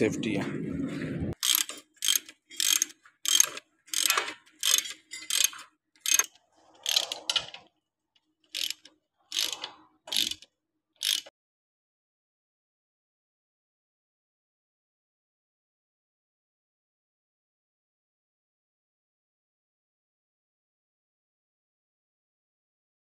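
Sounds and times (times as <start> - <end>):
ratchet wrench clicking: 1.4 - 7.5, 8.5 - 11.3.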